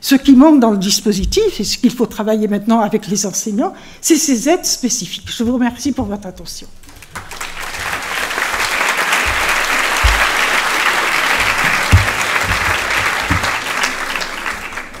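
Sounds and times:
dull low thumps: 1.1s - 1.7s, 5.1s - 6.4s, 9.2s - 13.6s
audience applauding: 6.8s - 15.0s.

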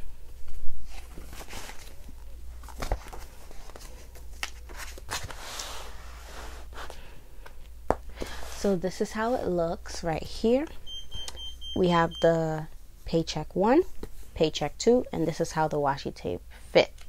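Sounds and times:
planner pages flipping: 0.8s - 5.8s.

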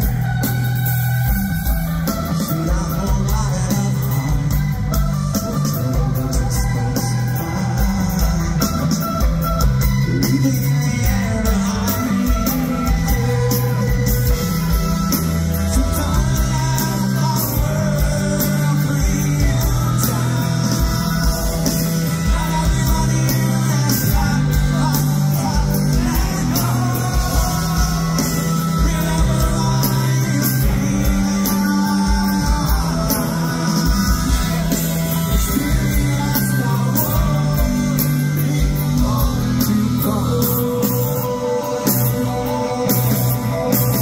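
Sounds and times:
bass guitar: 0.0s - 44.0s
drums: 0.0s - 44.0s
electric guitars: 0.0s - 44.0s
man singing: 0.0s - 44.0s.

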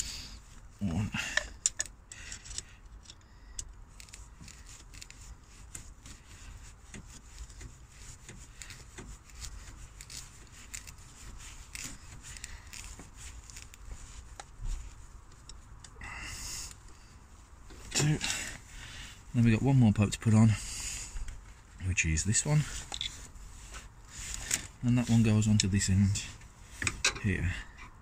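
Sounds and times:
screwdriver clicking and scraping: 0.0s - 14.6s, 22.7s - 24.8s, 26.7s - 28.0s.

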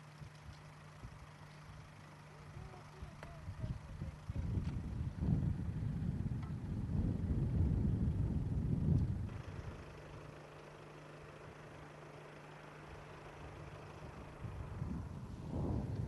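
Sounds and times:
steady low hum: 0.0s - 16.0s
wind rumble on microphone: 2.6s - 9.7s, 13.5s - 16.0s.

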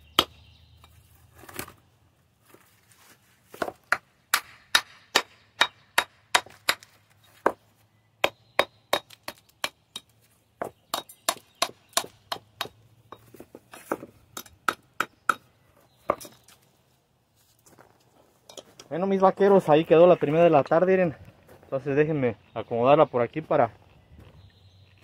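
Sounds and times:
hammer striking stone: 3.6s - 7.6s.

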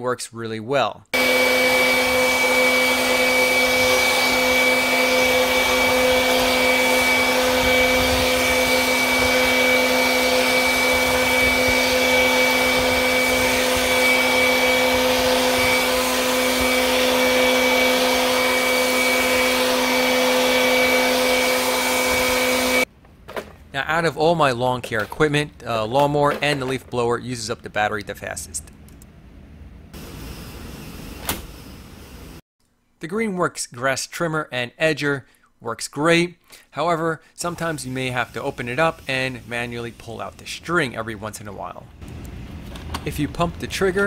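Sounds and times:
leaf blower air rush: 1.2s - 22.9s, 30.0s - 32.4s, 37.4s - 40.4s
leaf blower fan whine: 1.2s - 22.9s, 30.0s - 32.4s, 42.0s - 43.7s.

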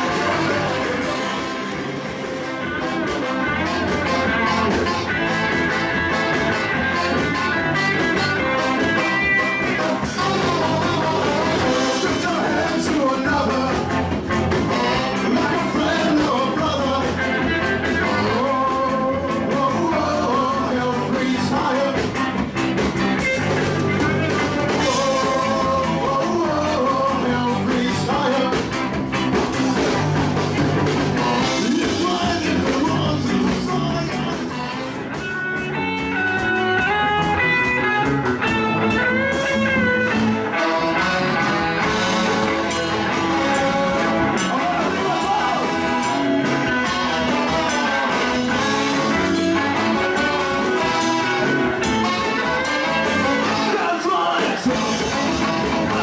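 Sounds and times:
ska-punk band playing: 0.0s - 56.0s
person singing: 8.3s - 22.3s, 23.9s - 28.8s, 31.0s - 35.0s, 38.9s - 56.0s.

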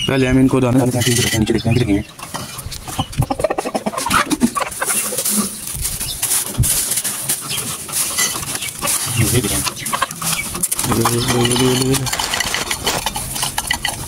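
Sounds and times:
chickens clucking: 0.0s - 14.0s
plastic bag crinkling: 4.2s - 14.0s.

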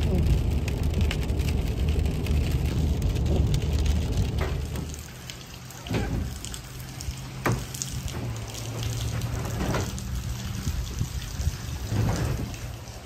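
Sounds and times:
steady rain: 0.0s - 13.0s
water splashing on pavement: 0.0s - 13.0s
sharp knocks in truck bed: 7.4s - 8.3s.

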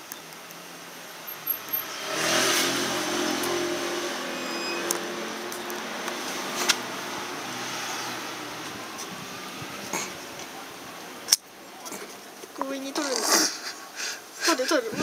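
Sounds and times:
vehicle engine passing by: 1.1s - 10.7s.

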